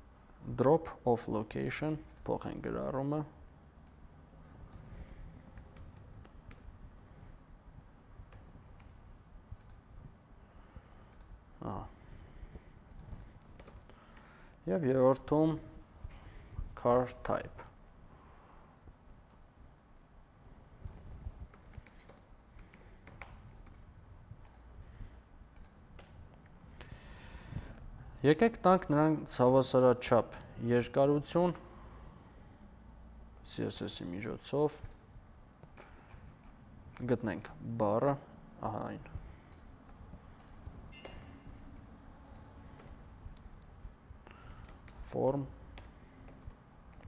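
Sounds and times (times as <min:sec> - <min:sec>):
keyboard and mouse clicks: 0:02.0 - 0:02.5, 0:04.7 - 0:06.8, 0:08.3 - 0:09.0, 0:09.6 - 0:09.9, 0:11.1 - 0:11.4, 0:12.8 - 0:14.4, 0:20.8 - 0:24.7, 0:25.5 - 0:26.8, 0:39.5 - 0:43.7, 0:44.3 - 0:47.0.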